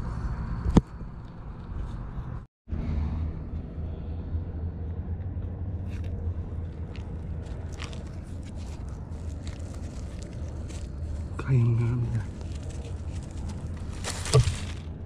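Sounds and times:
steady low rumble: 0.0s - 15.0s
dry leaves rustling and crackling: 6.7s - 14.9s.

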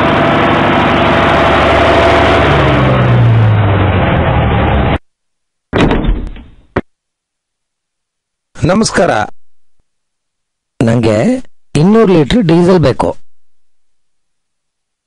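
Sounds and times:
van engine running: 0.0s - 5.0s.

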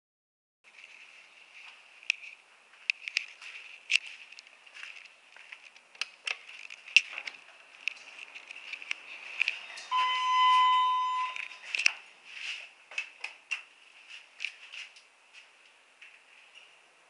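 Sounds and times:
elevator electronic beep: 9.7s - 11.7s.

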